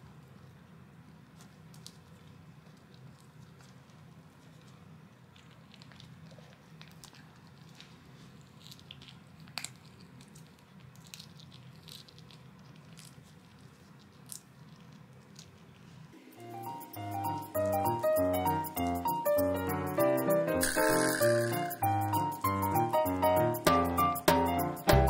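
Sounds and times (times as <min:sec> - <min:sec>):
dog gnawing a dry chew: 0:00.0 - 0:16.1
piano music: 0:16.2 - 0:25.0.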